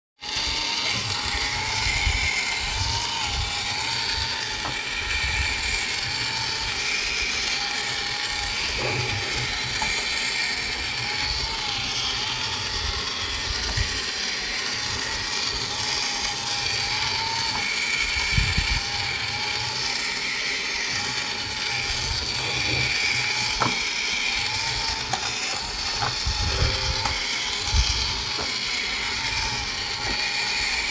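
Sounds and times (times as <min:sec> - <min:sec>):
toy car motor whirring: 0:00.2 - 0:30.9.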